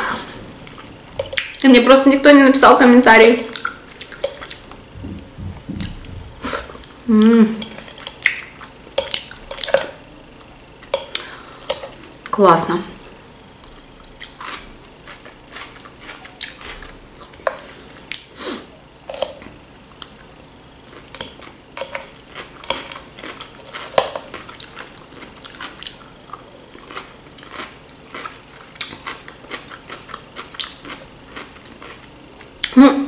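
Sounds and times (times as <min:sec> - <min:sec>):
person chewing food: 0:00.7 - 0:01.6, 0:03.5 - 0:12.2, 0:13.6 - 0:18.4, 0:19.1 - 0:32.7.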